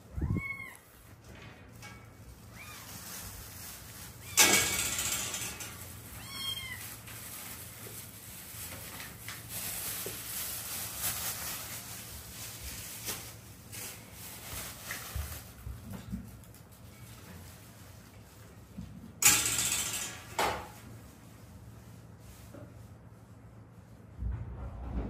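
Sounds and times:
cat meow: 0:00.0 - 0:00.9, 0:06.2 - 0:07.0
soft rustles: 0:00.2 - 0:04.4, 0:05.7 - 0:18.9.

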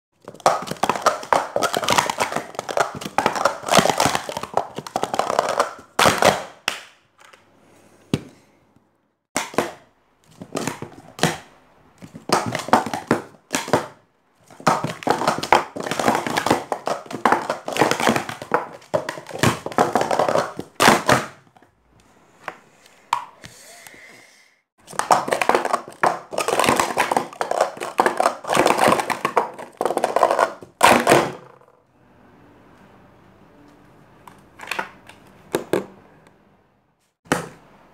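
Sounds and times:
plastic cups clattering: 0:00.2 - 0:07.4, 0:09.4 - 0:21.7, 0:24.8 - 0:31.8.

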